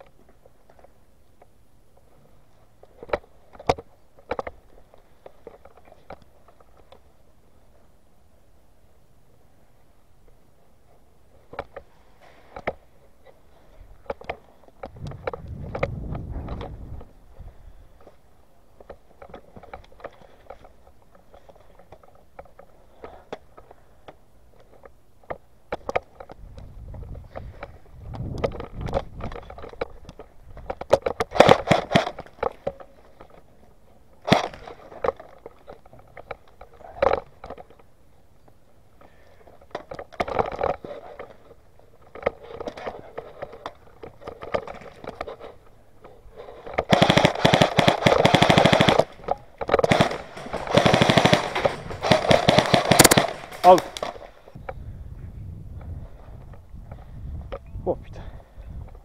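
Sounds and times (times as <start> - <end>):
automatic airsoft fire: 31.3 - 32.2, 46.9 - 49.2, 49.8 - 54.3.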